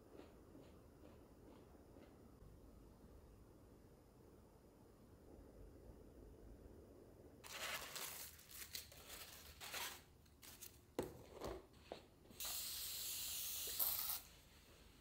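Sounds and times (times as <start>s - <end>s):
paper wrappers crinkling: 7.4s - 10.9s
spray bottle hissing: 12.4s - 14.3s.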